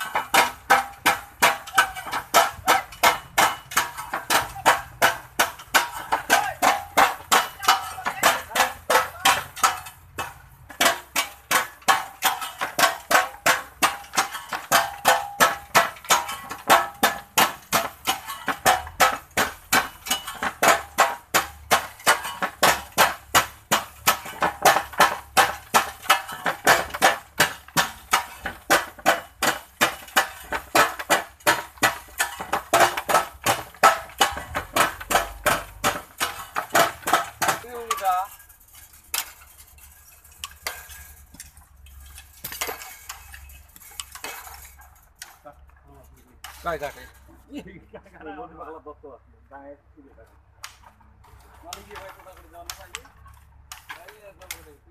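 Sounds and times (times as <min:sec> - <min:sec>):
hammers striking wire mesh: 0:00.0 - 0:45.4, 0:51.6 - 0:54.9.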